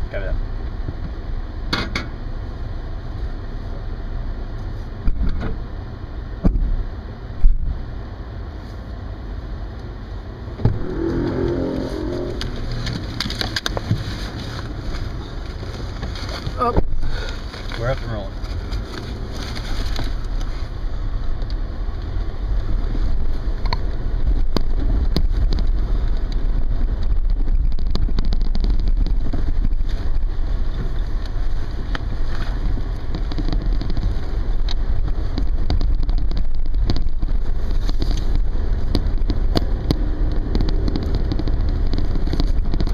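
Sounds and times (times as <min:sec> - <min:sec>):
truck engine and road rumble: 0:00.0 - 0:42.9
small clicks and rattles: 0:23.6 - 0:42.9.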